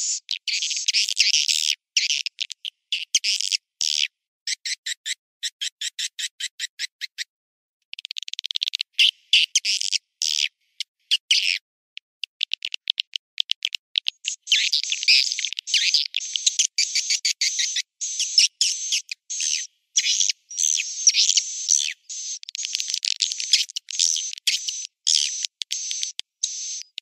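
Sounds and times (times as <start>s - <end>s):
swiftlets chirping and twittering: 0.0s - 1.3s, 14.2s - 27.0s.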